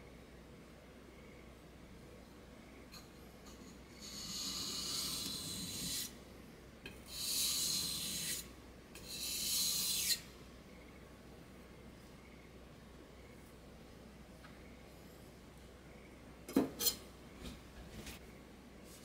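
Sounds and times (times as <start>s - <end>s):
knife scraped on whetstone: 3.5s - 6.1s, 7.1s - 10.2s.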